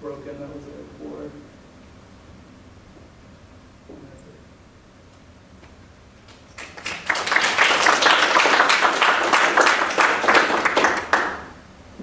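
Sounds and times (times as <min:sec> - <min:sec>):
audience applauding: 0:06.3 - 0:11.6.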